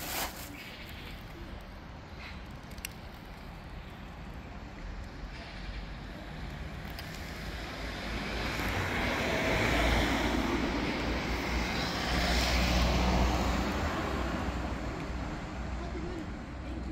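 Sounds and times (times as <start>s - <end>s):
vehicle passing by: 7.7s - 15.7s.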